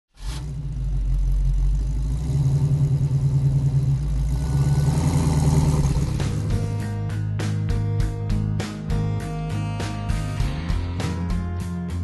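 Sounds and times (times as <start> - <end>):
rumbling drone with fast flutter: 0.1 - 6.9.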